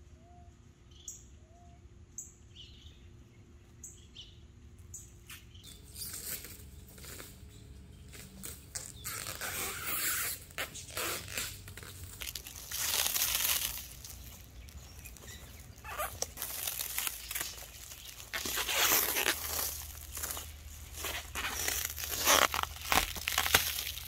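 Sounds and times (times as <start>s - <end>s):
plastic stretch wrap crackling: 8.1s - 24.0s.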